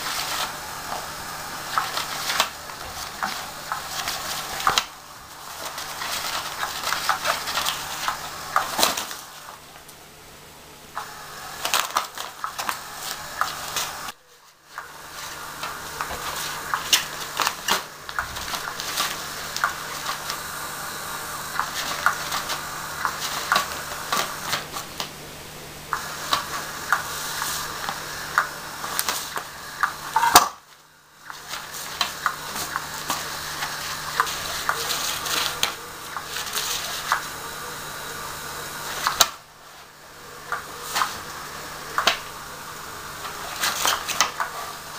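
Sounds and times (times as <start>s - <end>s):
rustling: 0.0s - 9.8s.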